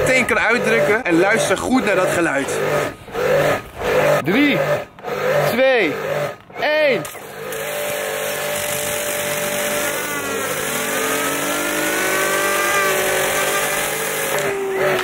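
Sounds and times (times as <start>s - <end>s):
fidget spinner whine: 0.0s - 15.0s
pressure washer motor hum: 0.0s - 15.0s
pressure washer jet hissing: 7.2s - 14.6s.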